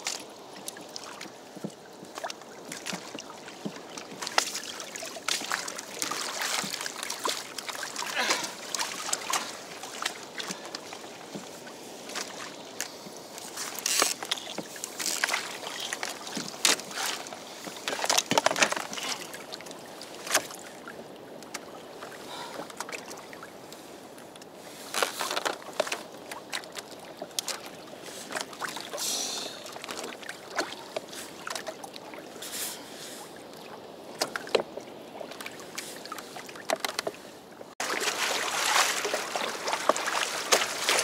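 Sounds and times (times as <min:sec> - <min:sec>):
knocks and splashes: 0:00.0 - 0:21.6, 0:29.6 - 0:32.1, 0:34.1 - 0:41.0
water lapping against kayak hull: 0:00.0 - 0:41.0.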